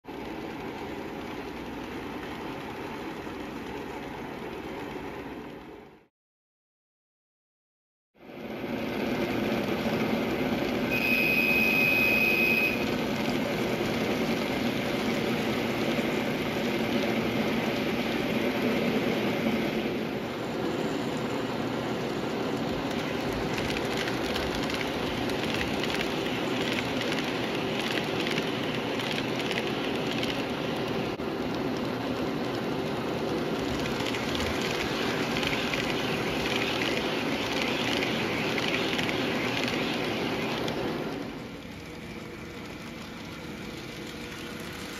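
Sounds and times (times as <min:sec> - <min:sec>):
high whine: 0:10.8 - 0:14.6, 0:33.7 - 0:41.5
fast clicks of wheels on track: 0:22.5 - 0:44.9
small wheels rattling: 0:22.7 - 0:30.9, 0:31.6 - 0:39.8.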